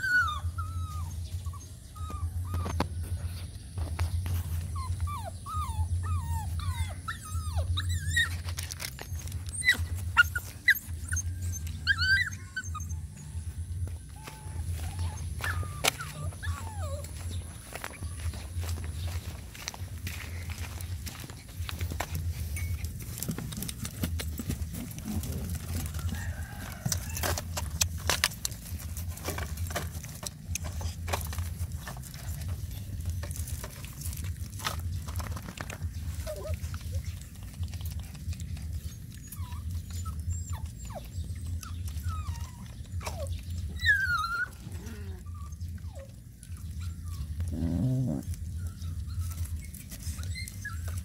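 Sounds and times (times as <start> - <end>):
puppy squeaks: 0.0 - 3.1, 4.6 - 13.4, 14.0 - 17.4, 36.2 - 37.1, 38.7 - 47.4, 48.0 - 51.0
puppies nursing scrabbling: 0.0 - 51.0
steady low rumble: 0.3 - 50.0.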